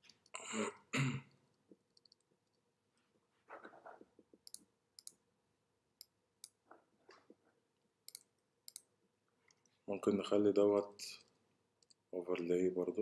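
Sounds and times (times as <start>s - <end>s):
computer clicks: 1.9s - 2.3s, 4.4s - 5.2s, 8.0s - 8.9s.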